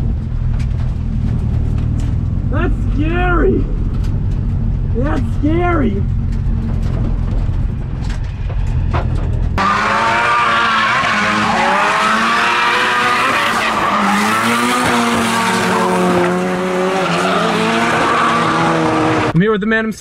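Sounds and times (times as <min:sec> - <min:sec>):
car engine rumble from inside: 0:00.0 - 0:09.7
car engine revving: 0:00.0 - 0:19.4
tyres squealing and skidding: 0:09.6 - 0:19.3.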